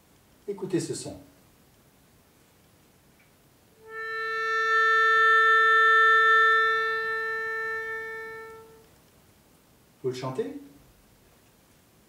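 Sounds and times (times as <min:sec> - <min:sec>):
melodica holding a note: 0:03.8 - 0:08.9.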